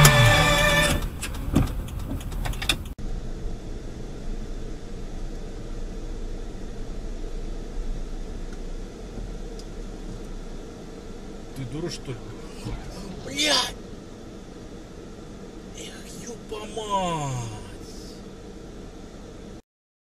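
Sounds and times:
music: 0:00.0 - 0:01.0
car engine and road noise: 0:00.0 - 0:19.6.

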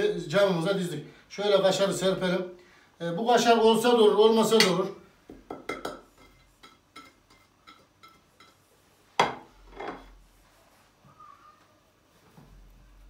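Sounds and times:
sharp knock on dish: 0:05.4 - 0:06.1.

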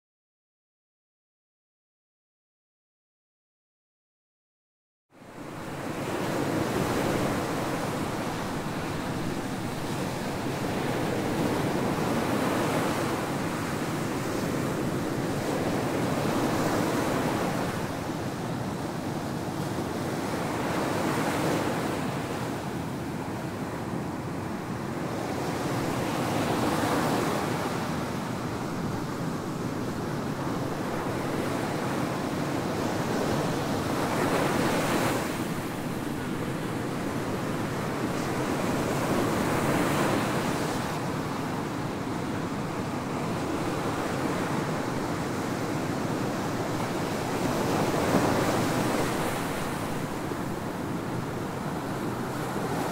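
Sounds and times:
ocean surf breaking on beach: 0:05.4 - 0:52.9.

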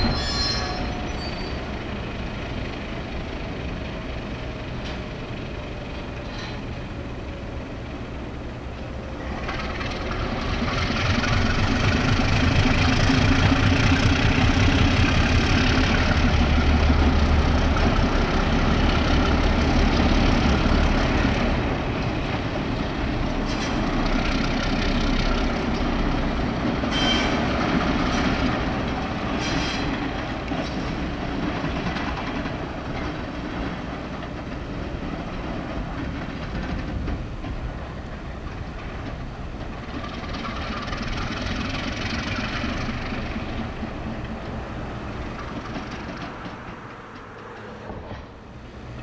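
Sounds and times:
short high squeals: 0:00.0 - 0:01.7.

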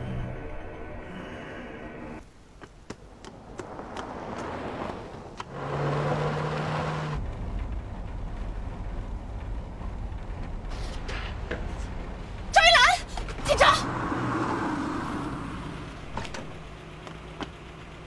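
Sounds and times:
car engine rumble inside cabin: 0:03.0 - 0:18.0
car rushing past with low drone: 0:13.8 - 0:16.8.

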